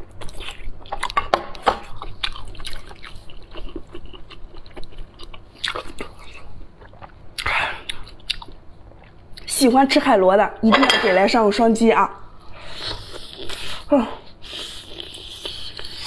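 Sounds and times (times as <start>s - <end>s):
wet chewing: 1.9s - 9.5s, 14.4s - 16.0s.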